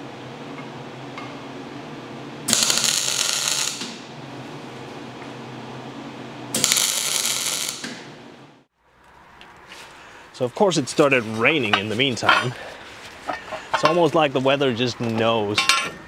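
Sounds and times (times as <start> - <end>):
steady low hum: 0.0 - 8.7
welder arc crackling: 2.5 - 4.1, 6.6 - 8.1.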